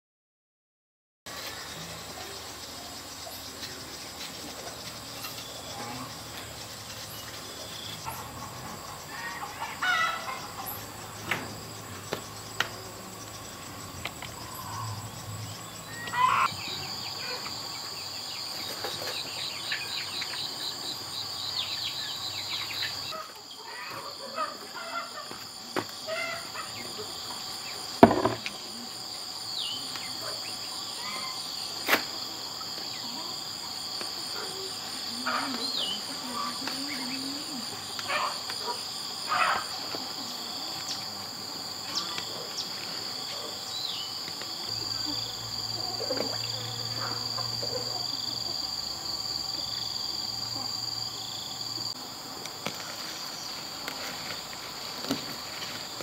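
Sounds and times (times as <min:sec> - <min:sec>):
insects trilling: 0:01.3 - 0:56.0
sharp knocks: 0:28.0 - 0:28.5.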